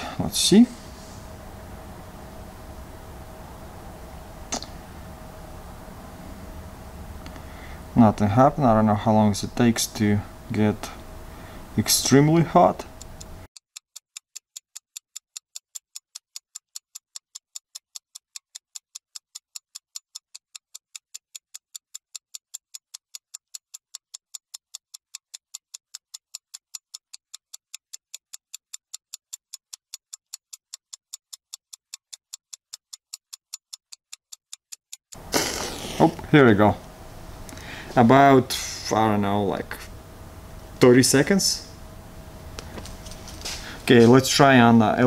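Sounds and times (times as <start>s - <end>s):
clock ticking: 12.9s - 35.2s.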